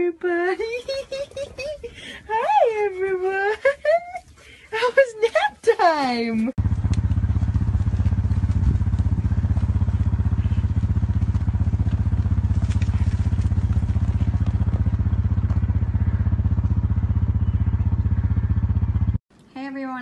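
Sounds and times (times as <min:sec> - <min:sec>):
small engine running: 0:06.6 - 0:19.2.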